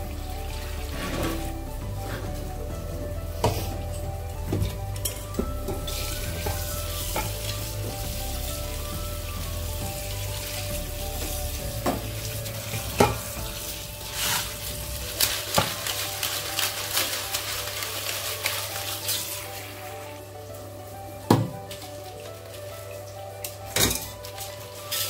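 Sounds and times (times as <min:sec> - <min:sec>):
running tap water: 0:00.0 - 0:25.0
crab shells rattling: 0:13.3 - 0:20.0.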